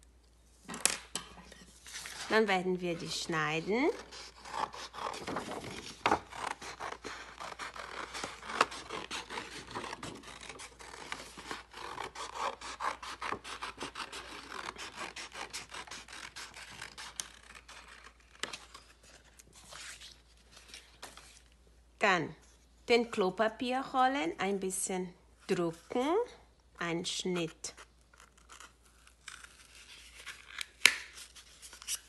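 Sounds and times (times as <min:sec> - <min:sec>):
paper rustling: 0:03.9 - 0:11.7
scissors snipping paper: 0:04.0 - 0:18.6.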